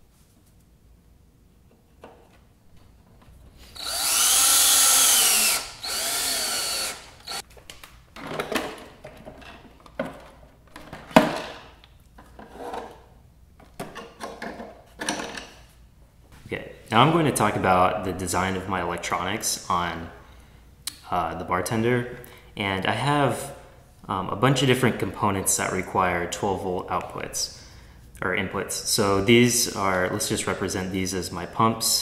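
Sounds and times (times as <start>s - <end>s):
power drill running: 3.8s - 7.4s.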